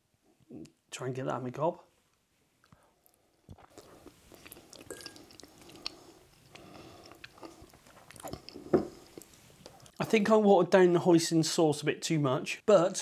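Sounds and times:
person chewing food: 2.6s - 10.0s.

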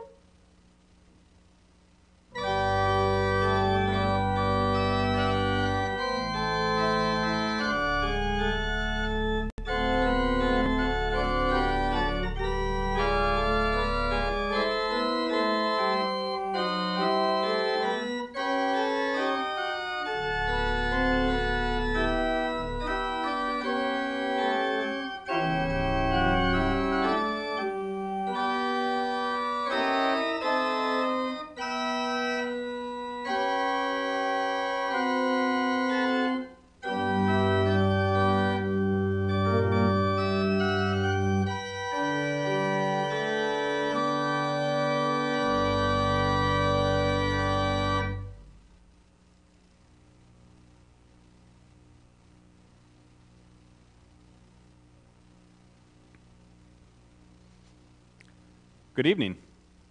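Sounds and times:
organ playing slow hymn: 2.3s - 48.6s.

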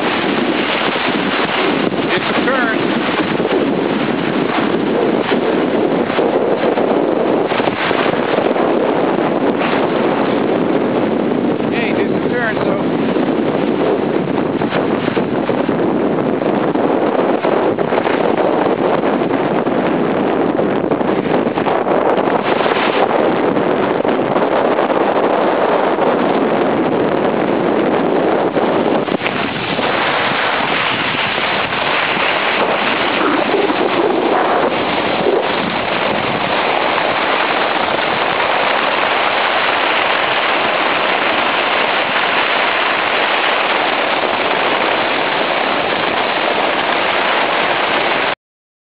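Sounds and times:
wind rushing on microphone: 0.0s - 48.4s.

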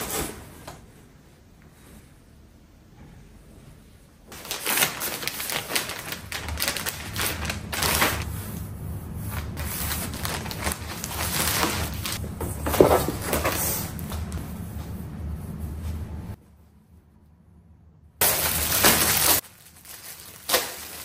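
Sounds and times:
plastic bags crinkling: 4.3s - 8.3s, 9.6s - 14.4s, 18.2s - 21.0s.

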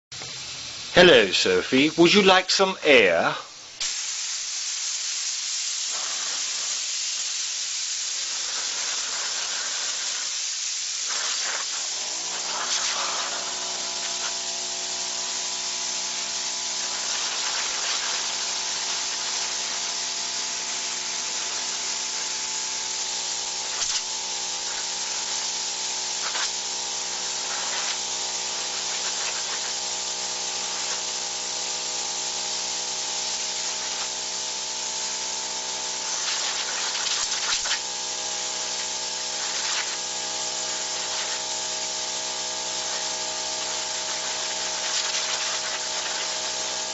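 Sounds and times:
air hissing: 0.2s - 46.9s.

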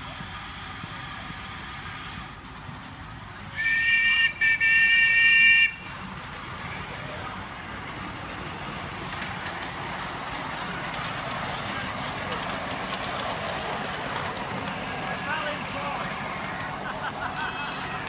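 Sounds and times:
steam whistle blasts: 3.5s - 5.8s
steady rushing noise: 5.8s - 18.0s.

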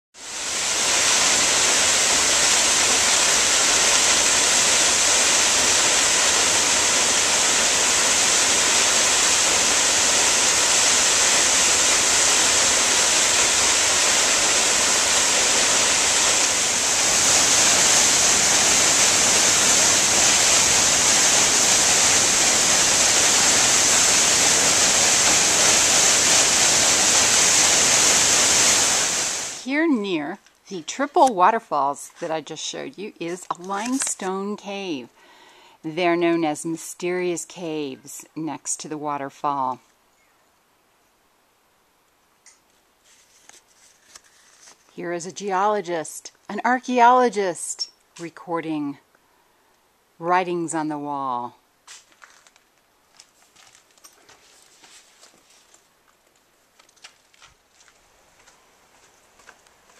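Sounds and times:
waterfall rushing: 0.2s - 29.7s.

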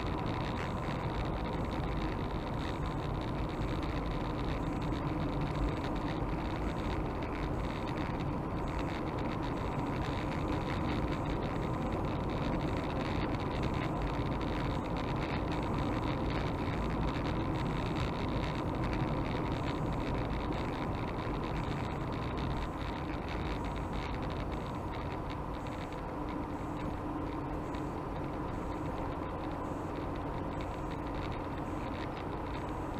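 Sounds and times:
car engine and tyre noise: 0.0s - 32.9s.

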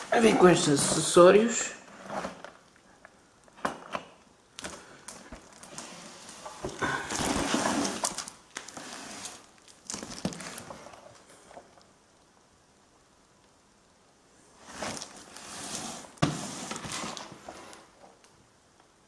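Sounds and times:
cardboard box rustling and scraping: 5.7s - 9.5s, 14.6s - 17.8s.

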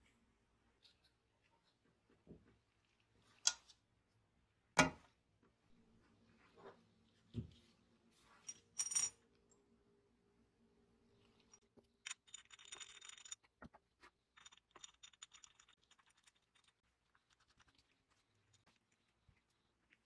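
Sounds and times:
small metal parts clicking and scraping: 11.4s - 13.5s, 14.3s - 16.8s.

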